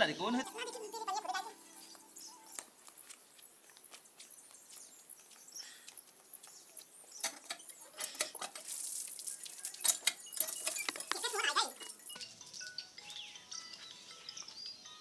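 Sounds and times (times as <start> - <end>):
footsteps in slippers on brick: 0.7 - 8.1
hand pump handle clanking: 7.2 - 8.7, 9.8 - 12.0.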